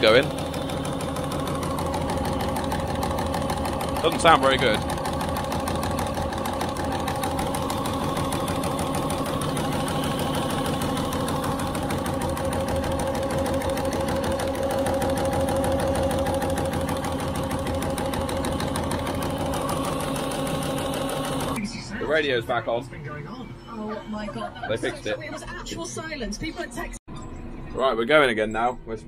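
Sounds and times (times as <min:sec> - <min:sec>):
sprayer pump knocking drone: 0:00.0 - 0:21.6.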